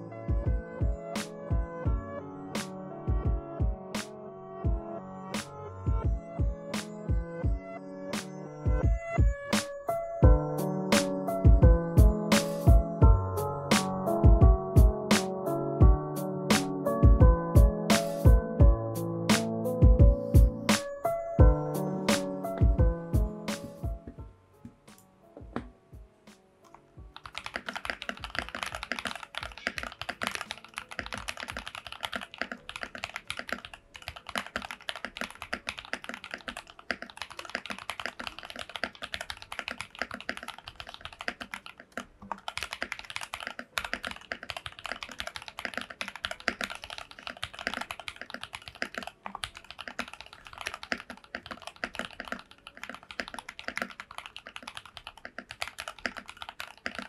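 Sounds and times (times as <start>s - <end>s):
mechanical keyboard typing: 27.2s - 57.0s.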